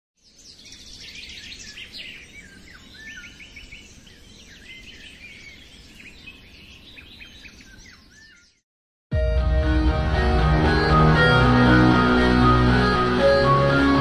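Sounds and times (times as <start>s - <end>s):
small birds chirping: 0.2s - 8.6s.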